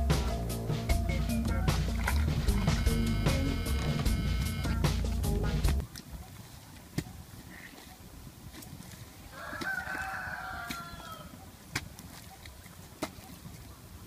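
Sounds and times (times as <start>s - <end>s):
background music: 0.0s - 5.8s
metal bar striking wet soil: 6.9s - 7.2s, 9.5s - 11.1s
rooster crowing: 9.3s - 11.3s.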